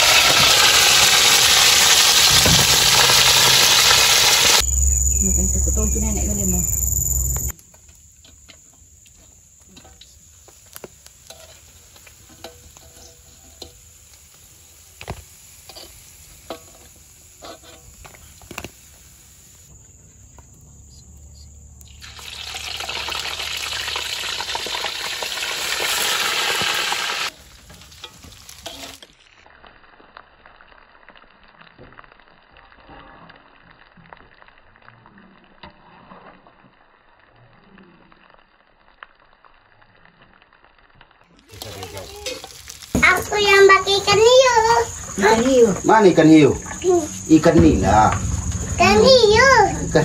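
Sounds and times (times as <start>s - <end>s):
fish frying in hot oil: 0.0s - 4.6s, 5.9s - 19.7s, 21.8s - 47.6s
oil popping and crackling: 0.0s - 4.6s, 7.4s - 19.7s, 21.8s - 49.8s.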